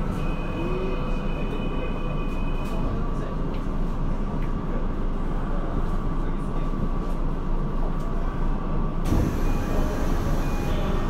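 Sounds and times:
train equipment hum: 7.0s - 11.0s
thin high whine: 9.1s - 11.0s.

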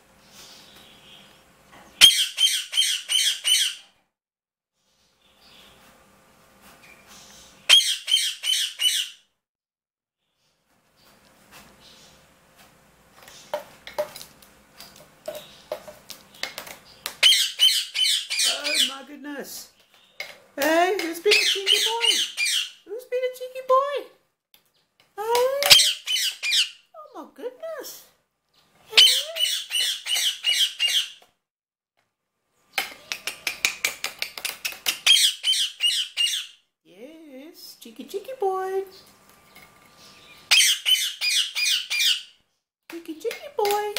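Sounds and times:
parakeet squawking: 2.0s - 3.9s, 7.7s - 9.2s, 17.2s - 19.2s, 21.0s - 22.8s, 25.6s - 26.9s, 28.9s - 31.2s, 35.0s - 36.6s, 40.5s - 42.3s.

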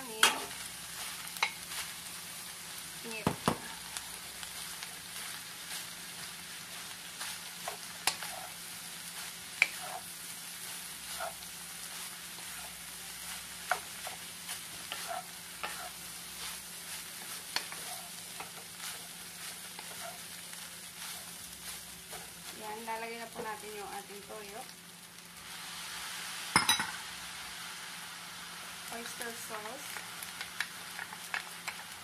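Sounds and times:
rice sizzling in a metal pan: 0.0s - 32.0s
wooden spatula knocking pan: 3.2s - 3.7s.

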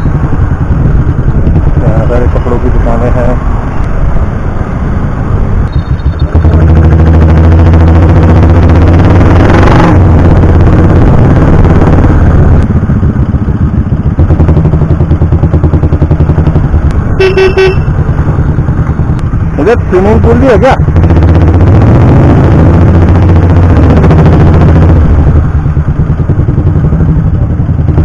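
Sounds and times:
motorcycle engine running: 0.0s - 28.0s
vehicle horn beep: 17.2s - 18.0s.

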